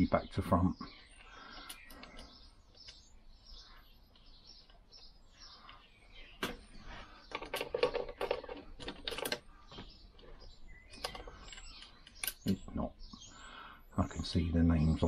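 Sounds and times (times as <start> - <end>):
faint bird chirps: 0.0 - 15.0
metal parts clicking and clinking: 7.3 - 12.6.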